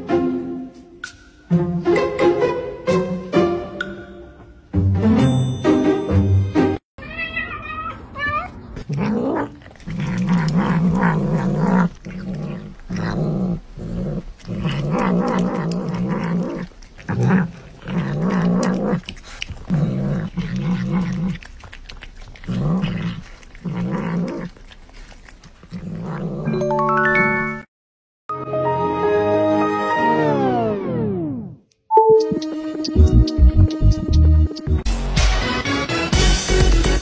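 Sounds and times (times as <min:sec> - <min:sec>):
cat growling: 0:08.0 - 0:26.5.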